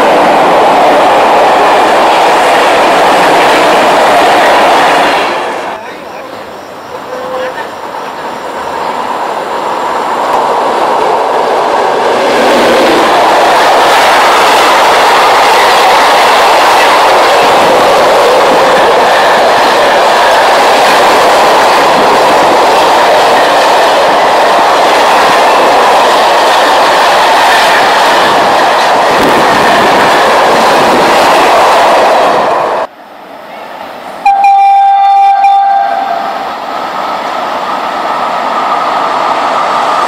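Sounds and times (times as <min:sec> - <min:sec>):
train wheels rushing on rails: 0:00.0 - 0:40.0
train horn: 0:34.2 - 0:36.4.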